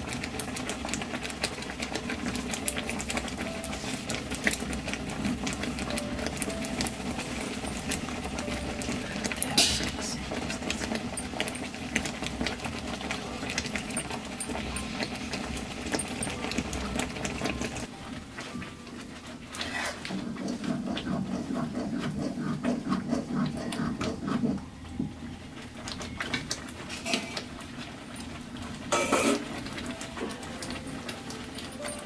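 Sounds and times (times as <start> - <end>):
soup simmering in pan: 0.0 - 32.0
metal plate clinking: 15.8 - 16.6
ladle stirring and scraping pan: 19.0 - 24.6, 26.8 - 32.0.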